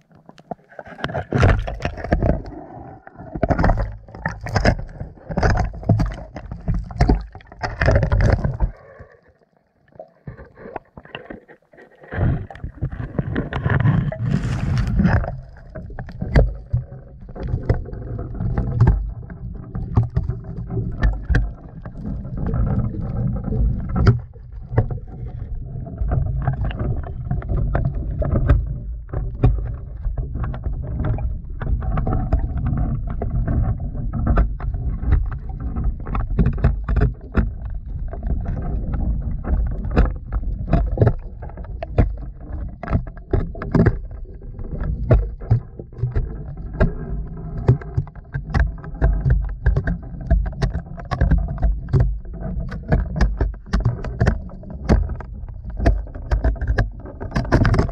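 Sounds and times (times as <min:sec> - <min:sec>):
camera knocking and scraping on wall: 0:12.1 - 0:16.5, 0:47.6 - 0:57.9.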